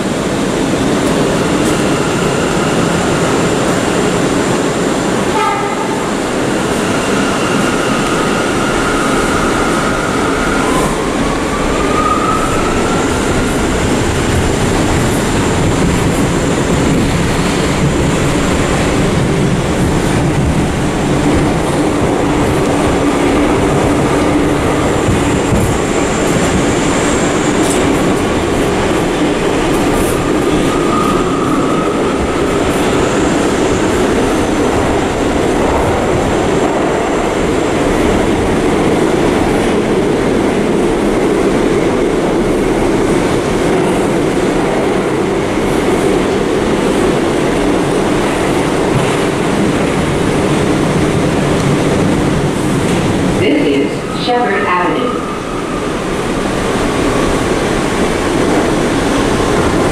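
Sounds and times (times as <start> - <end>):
subway wheels rumbling on track: 0.0 - 59.9.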